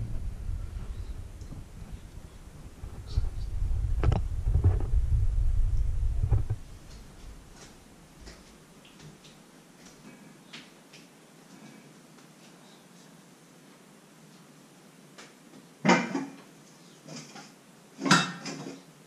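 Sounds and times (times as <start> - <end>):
camera handling rumble and knocks: 1.2 - 7.1.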